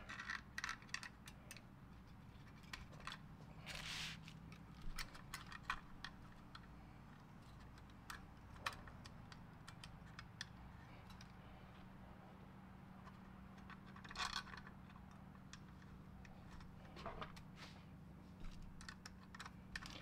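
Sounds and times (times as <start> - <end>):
small clicks of screws: 0.0 - 1.7, 4.5 - 11.4, 18.4 - 20.0
short scrape: 3.7 - 4.2.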